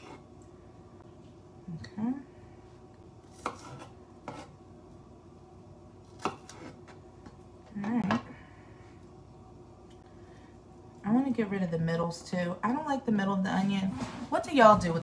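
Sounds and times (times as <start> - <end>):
knife cutting onion: 3.2 - 4.6, 6.1 - 6.9.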